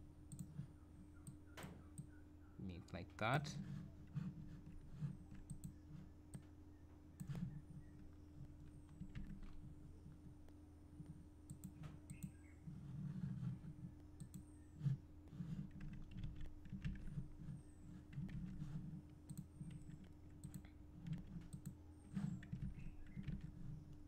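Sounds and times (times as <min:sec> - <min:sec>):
low electrical hum: 0:00.0 - 0:24.0
mouse clicks: 0:11.5 - 0:12.5.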